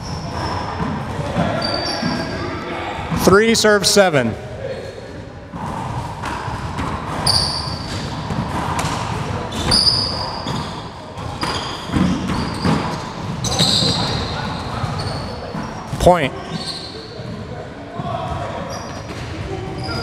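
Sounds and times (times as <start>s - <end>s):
sneaker squeaks on floor: 0.0s - 2.5s, 7.1s - 17.5s, 18.5s - 20.0s.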